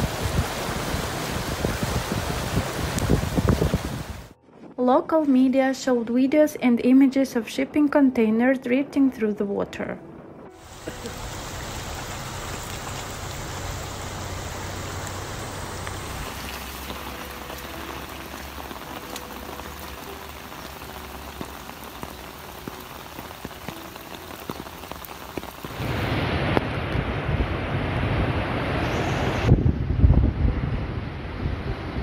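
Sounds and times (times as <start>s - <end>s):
rain falling on streets: 0.0s - 4.4s, 10.6s - 29.5s
wind buffeting microphone: 0.0s - 4.8s, 25.6s - 32.0s.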